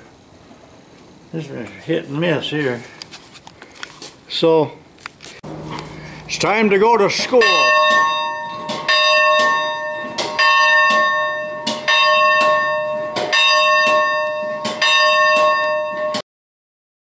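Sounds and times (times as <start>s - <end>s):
school bell ringing: 5.5s - 16.2s.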